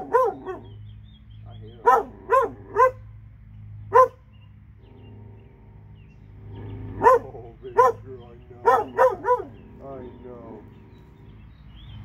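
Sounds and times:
dog barking: 0.0s - 0.8s, 1.8s - 3.1s, 3.9s - 4.2s, 7.0s - 9.9s.

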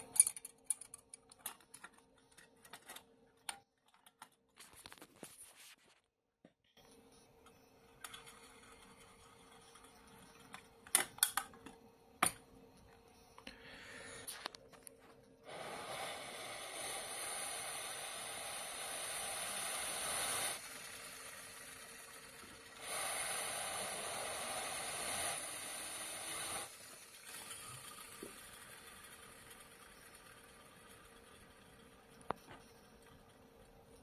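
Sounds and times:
model jet engine whirring hiss: 15.4s - 32.6s.

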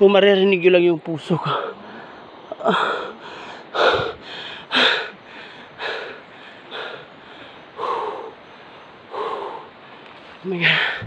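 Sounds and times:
man panting heavily: 2.6s - 10.0s, 10.6s - 11.0s.

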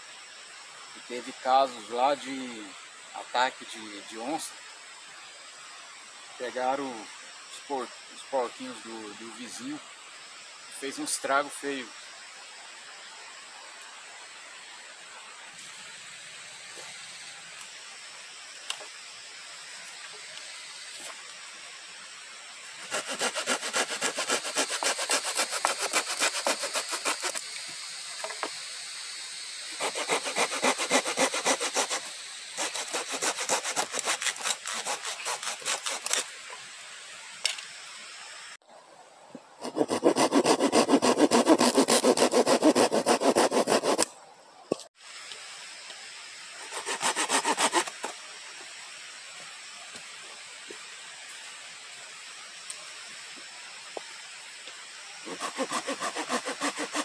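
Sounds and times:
hand saw cutting wood: 22.8s - 27.4s, 29.7s - 36.3s, 39.6s - 44.1s, 46.7s - 48.1s, 55.3s - 57.0s.

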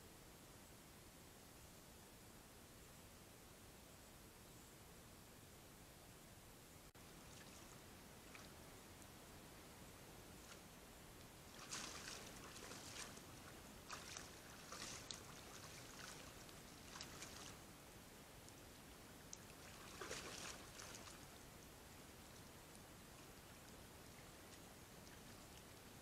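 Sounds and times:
low steady hiss: 0.0s - 26.0s
splashing steps in shallow water: 11.5s - 17.6s, 19.5s - 21.2s.

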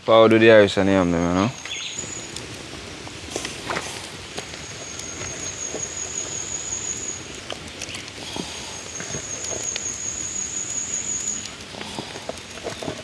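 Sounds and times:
outdoor hiss: 0.0s - 13.0s
high-pitched whine: 8.6s - 11.7s.

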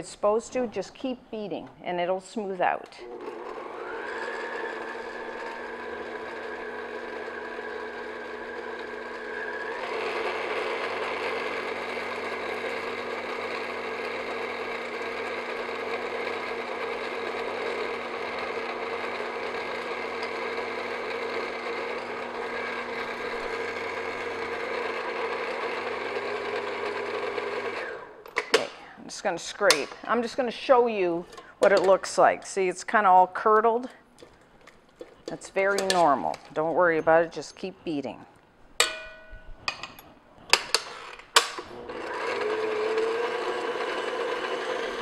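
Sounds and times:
stand mixer motor whine: 3.0s - 28.2s, 41.5s - 45.0s.

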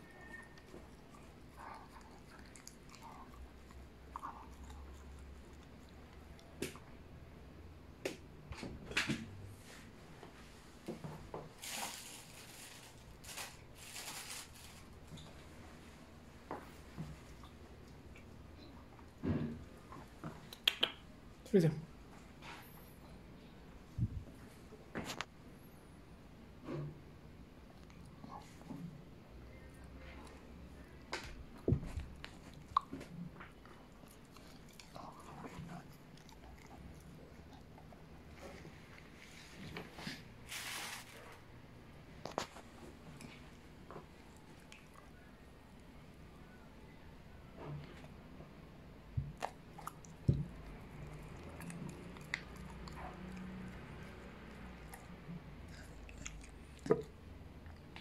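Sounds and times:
dog chewing and licking: 0.2s - 6.6s, 31.9s - 39.1s, 49.4s - 57.9s.

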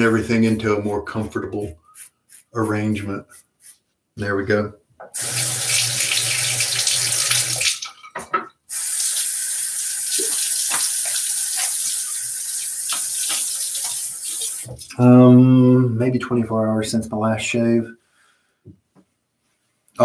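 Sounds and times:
tap water pouring into sink: 5.2s - 8.4s, 10.0s - 14.8s.

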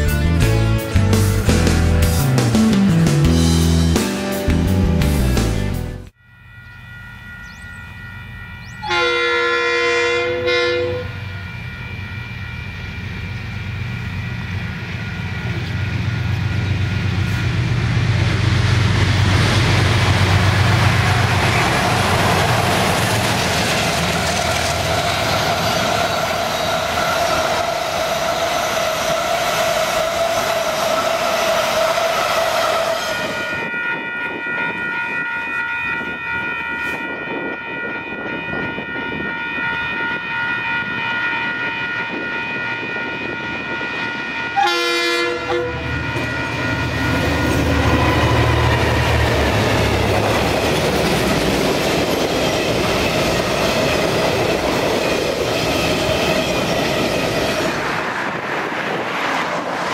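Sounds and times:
long steady multi-pitch horn tone: 6.1s - 13.4s, 32.7s - 48.4s
train carriages rolling on rails: 6.5s - 59.9s
locomotive low rumble: 10.9s - 28.7s.

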